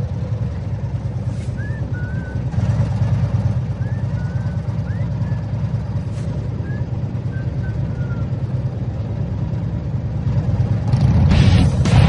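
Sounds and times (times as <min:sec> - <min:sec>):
vehicle engines rumbling: 0:00.0 - 0:12.0
faint whistling chirps: 0:01.5 - 0:02.6, 0:03.6 - 0:08.6.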